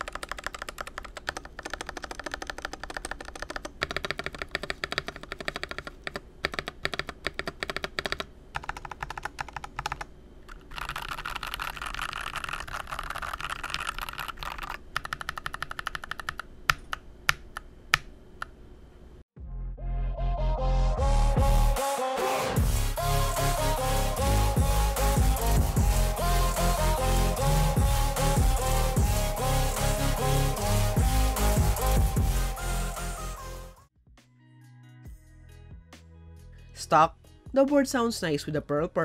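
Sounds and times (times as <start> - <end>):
mechanical keyboard typing: 0.0 - 18.5.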